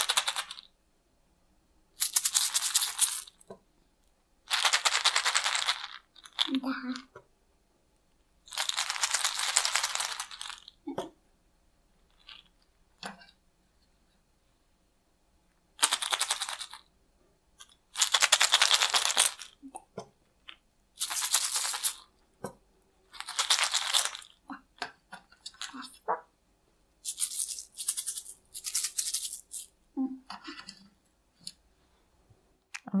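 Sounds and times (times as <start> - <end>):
capsules rattling when shaken: 0.0 - 0.7, 2.0 - 3.4, 4.5 - 6.7, 8.5 - 10.8, 15.8 - 16.9, 17.6 - 19.6, 21.0 - 22.1, 23.1 - 24.4, 25.4 - 26.0, 27.0 - 29.8.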